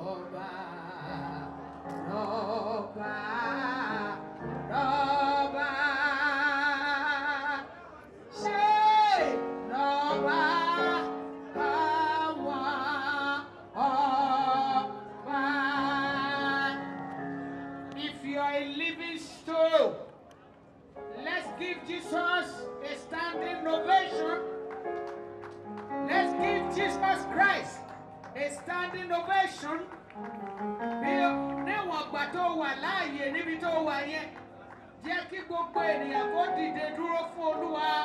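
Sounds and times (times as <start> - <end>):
woman singing into a microphone: 0.0 - 7.7, 8.4 - 19.8.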